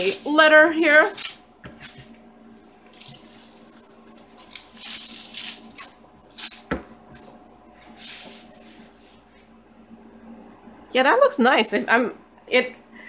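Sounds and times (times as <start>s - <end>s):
plastic film rustling and crinkling: 0.0s - 9.2s.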